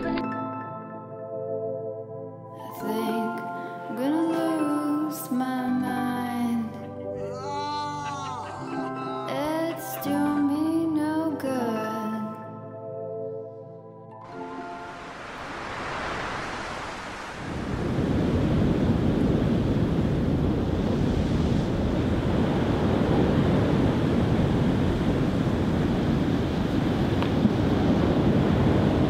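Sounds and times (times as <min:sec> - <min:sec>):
sea waves on sandy beach: 0:14.3 - 0:29.0
wind on microphone: 0:15.6 - 0:29.0.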